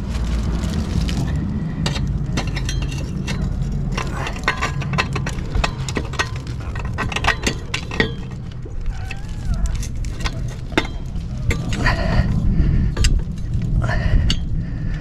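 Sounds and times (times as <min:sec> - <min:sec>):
steady low hum: 0:00.0 - 0:15.0
metal pipe clinking and tapping: 0:01.8 - 0:12.0.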